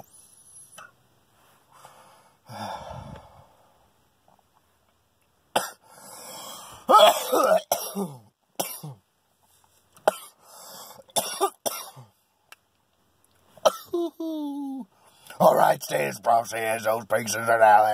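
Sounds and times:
man coughing: 5.6s - 5.8s, 6.9s - 9.0s, 10.1s - 10.4s, 11.2s - 12.1s, 13.6s - 14.1s.

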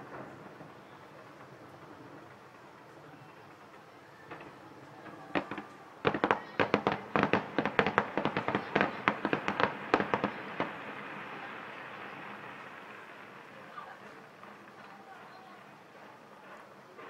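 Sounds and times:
fireworks bangs: 0.0s - 17.0s
fireworks hiss: 0.0s - 17.0s.

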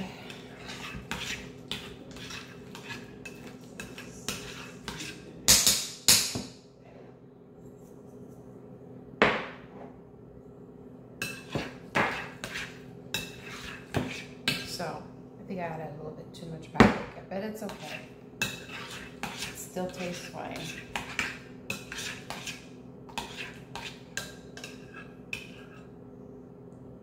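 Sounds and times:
utensil scraping glass bowl: 0.0s - 5.2s, 11.2s - 14.8s, 17.7s - 25.9s.

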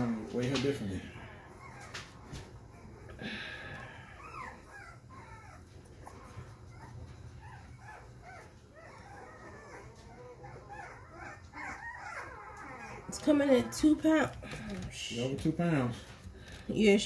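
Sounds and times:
puppy whimpering and squealing: 1.2s - 14.2s.

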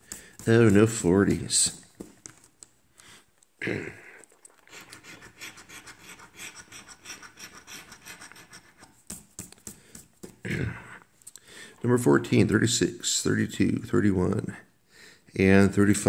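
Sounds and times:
coin scratching a ticket: 4.9s - 8.9s.

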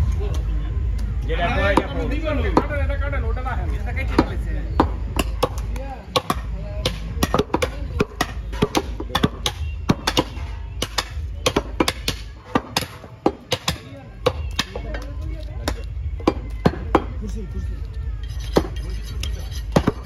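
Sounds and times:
cleaver chopping on wooden block: 4.8s - 14.9s, 18.4s - 20.0s.

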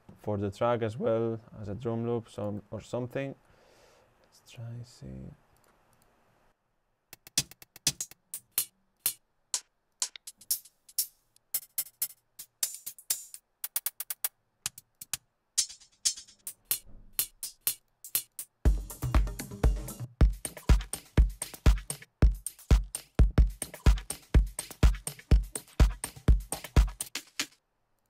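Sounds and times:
crisp hi-hat ticks: 7.2s - 19.3s, 20.2s - 27.6s.

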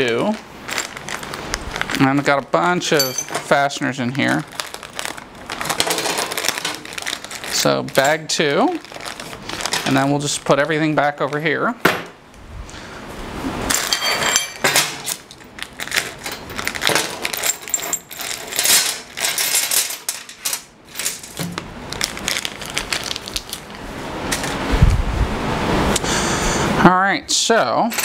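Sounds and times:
metal fasteners clinking: 2.8s - 3.7s, 7.6s - 8.6s, 13.7s - 23.6s.

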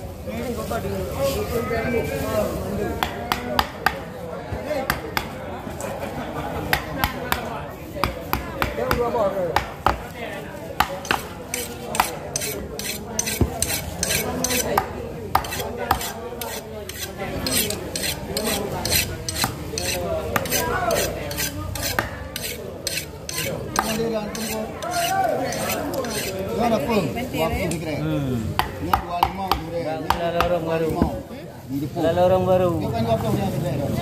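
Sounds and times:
blade scraping fish scales: 11.0s - 14.7s, 15.4s - 26.5s.

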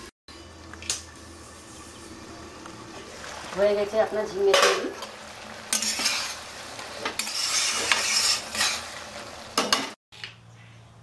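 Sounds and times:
faint sizzle: 0.3s - 10.0s
spatula scraping a wok: 5.5s - 10.0s.

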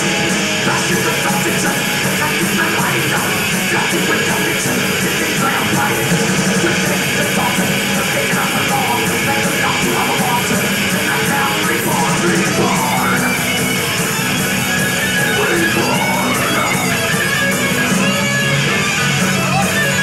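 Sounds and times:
bass guitar: 0.0s - 20.0s
distorted electric guitars: 0.0s - 20.0s
drums: 0.0s - 20.0s.

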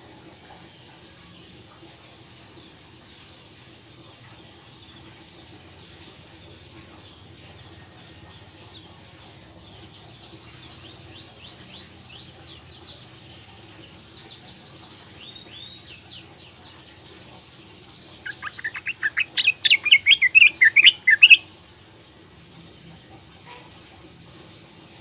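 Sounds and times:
bird chirping and chattering: 18.0s - 21.4s.

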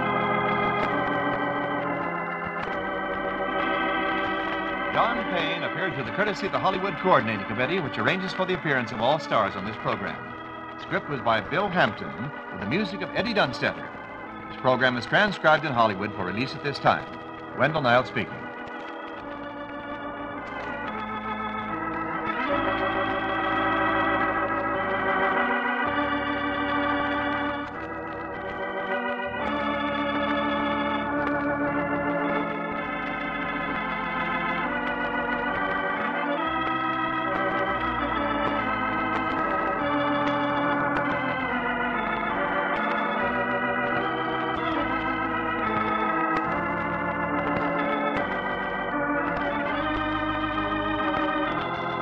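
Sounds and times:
organ music: 0.0s - 52.0s.

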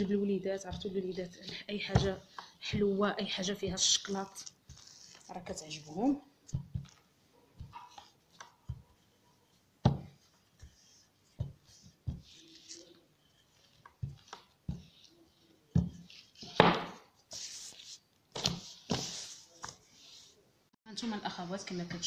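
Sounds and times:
dough rubbing and scraping: 0.0s - 20.4s
rolling pin knocking on work surface: 9.8s - 10.1s, 16.6s - 17.0s.

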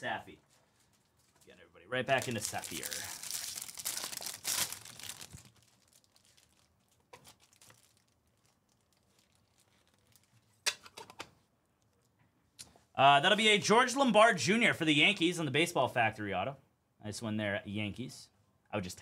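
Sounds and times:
wrapper tearing and crinkling: 2.1s - 10.5s.

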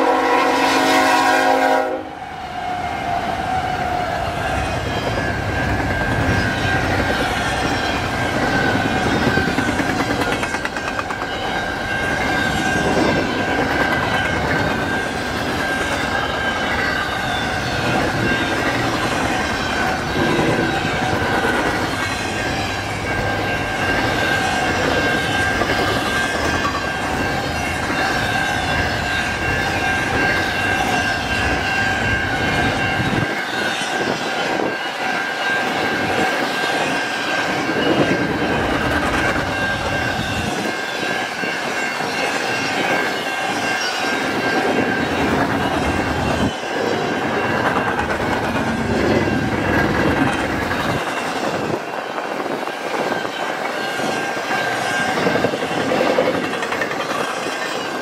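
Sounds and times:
train wheels clattering over rails: 4.9s - 28.4s, 41.7s - 58.0s.

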